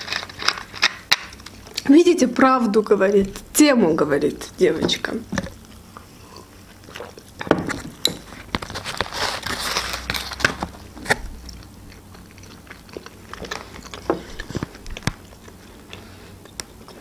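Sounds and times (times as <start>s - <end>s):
small crunches: 0.0s - 1.9s, 6.7s - 17.0s
biting and chewing food: 0.0s - 2.0s, 4.9s - 17.0s.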